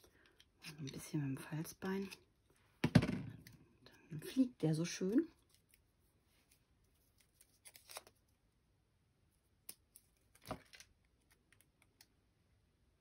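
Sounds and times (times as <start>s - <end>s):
paper rustle: 6.4s - 8.2s.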